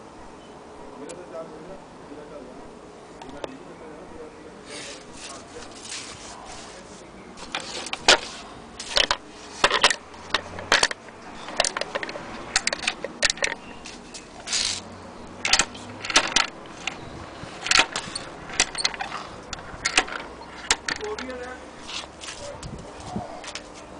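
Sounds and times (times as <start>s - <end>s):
toy train coupling clinks: 8.9s - 13.6s, 15.4s - 17.0s, 17.6s - 21.4s.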